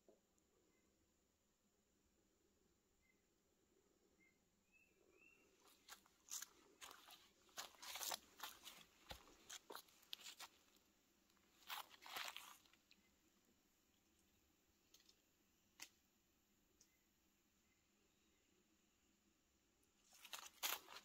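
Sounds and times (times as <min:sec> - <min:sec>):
footsteps crunching on forest floor: 0:05.6 - 0:12.9, 0:20.0 - 0:21.0.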